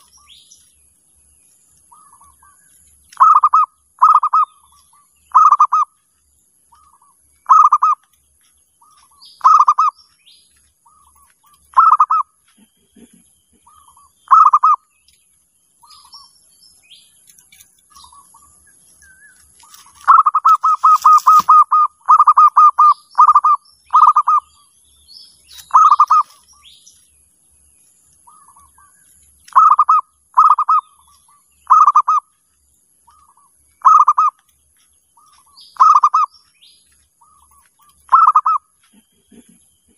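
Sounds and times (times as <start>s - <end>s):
small birds chirping: 0.0s - 39.9s
dove cooing: 3.2s - 6.0s, 6.7s - 8.0s, 8.8s - 10.0s, 10.8s - 14.9s, 19.6s - 24.6s, 25.6s - 26.4s, 29.5s - 32.3s, 33.1s - 34.4s, 35.2s - 36.3s, 37.2s - 39.9s.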